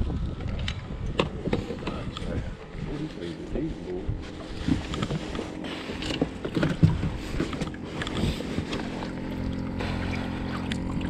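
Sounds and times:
small motor humming: 0:04.4 - 0:11.0.

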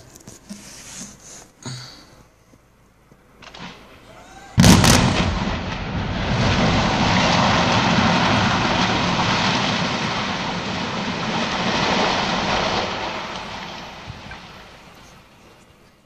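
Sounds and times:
rumble of falling masonry: 0:03.3 - 0:16.0.

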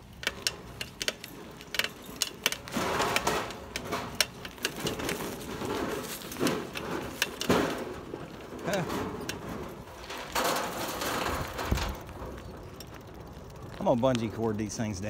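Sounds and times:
bicycle rattling and clicking: 0:00.0 - 0:15.0
tyre noise on loose ground: 0:00.0 - 0:15.0.

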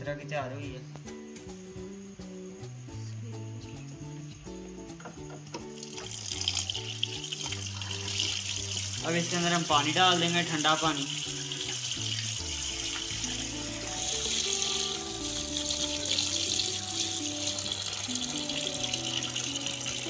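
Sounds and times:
background music with held notes: 0:00.0 - 0:20.0
tap water running into bowl: 0:05.6 - 0:20.0.

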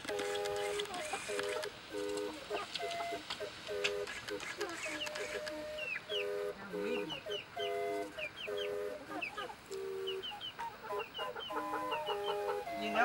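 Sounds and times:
hens clucking and calling: 0:00.0 - 0:13.0
short high peeps: 0:00.2 - 0:10.3.

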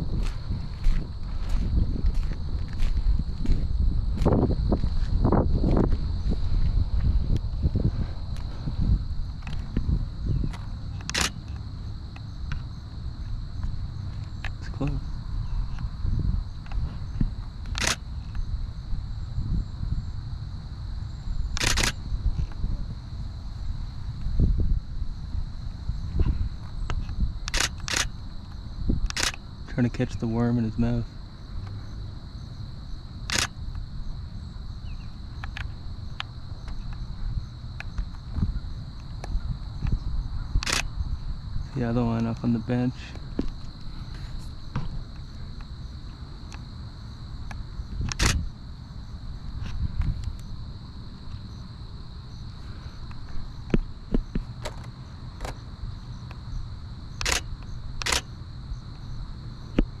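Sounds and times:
high insect drone: 0:00.0 - 1:00.0
low wind rumble: 0:00.0 - 1:00.0
camera shutter clicks: 0:11.0 - 0:11.5, 0:17.7 - 0:18.0, 0:21.6 - 0:22.0, 0:27.4 - 0:28.1, 0:29.1 - 0:29.4, 0:33.3 - 0:33.6, 0:40.6 - 0:40.9, 0:48.1 - 0:48.4, 0:57.2 - 0:58.3.

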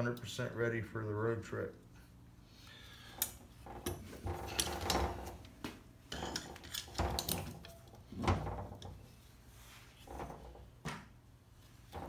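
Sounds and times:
metal clinks and scraping: 0:06.1 - 0:08.0.

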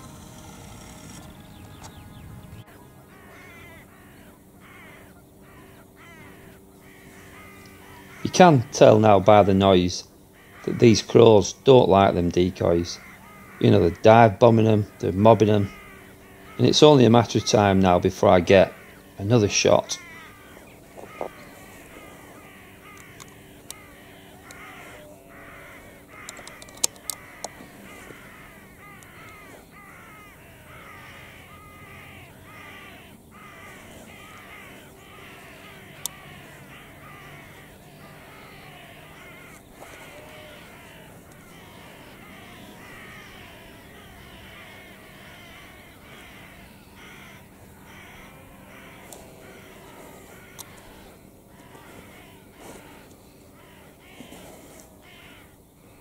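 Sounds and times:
crows cawing: 0:00.0 - 0:56.0
sharp clicks: 0:26.2 - 0:28.3.

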